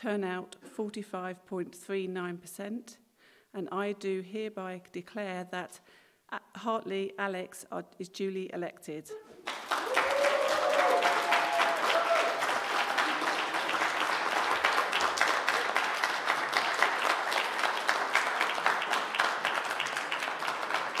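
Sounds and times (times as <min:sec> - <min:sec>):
small crowd applauding: 0:09.3 - 0:21.0.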